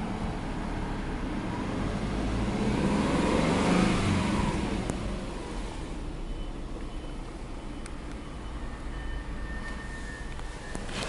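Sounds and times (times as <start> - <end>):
car engine revving: 1.5 - 6.0.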